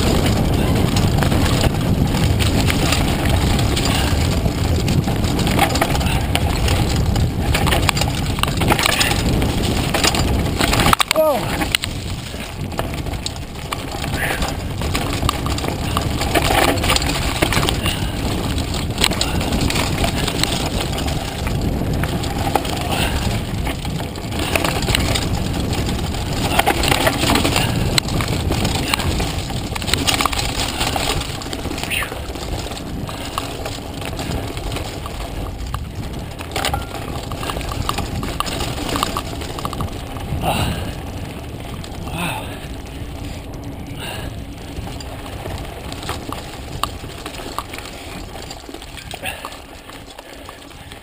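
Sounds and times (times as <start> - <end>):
bike rattling over bumps: 0.0 - 51.0
tyre rumble on dirt: 0.0 - 51.0
wind on microphone: 0.0 - 51.0.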